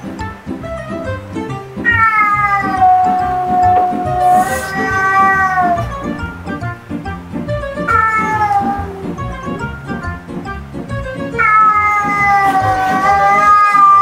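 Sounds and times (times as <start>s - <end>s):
background music: 0.0s - 14.0s
cat yowling: 1.8s - 6.0s, 7.8s - 9.6s, 11.3s - 14.0s.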